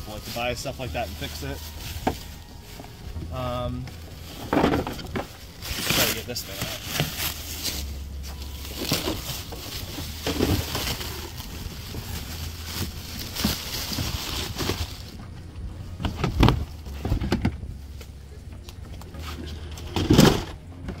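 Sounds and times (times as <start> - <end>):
plastic wrap crinkling: 0.0 - 15.2.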